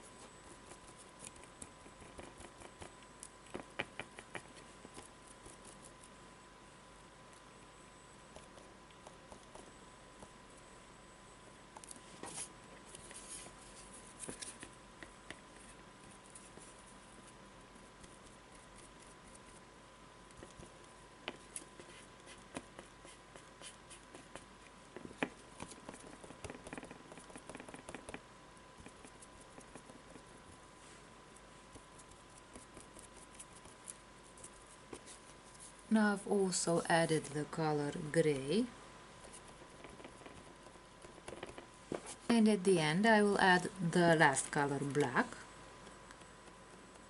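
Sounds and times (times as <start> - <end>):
paintbrush tapping on board: 25.2 - 28.2.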